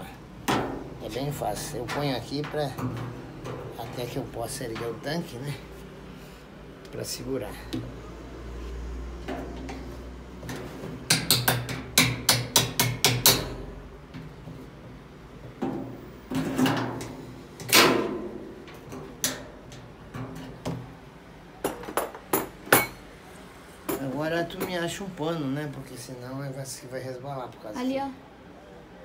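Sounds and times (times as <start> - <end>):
tool tapping on metal: 10.5 - 14.3.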